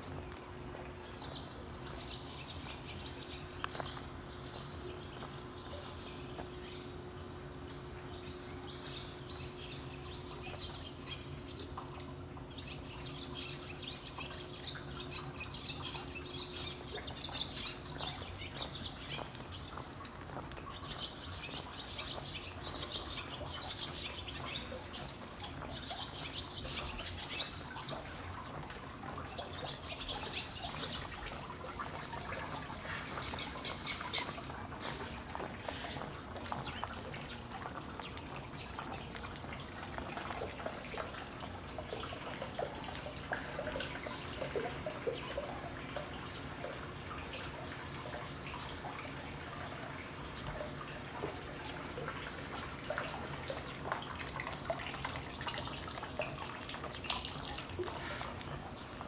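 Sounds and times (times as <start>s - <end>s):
faint steady hum: 0.0s - 59.0s
small birds chirping: 0.9s - 47.6s.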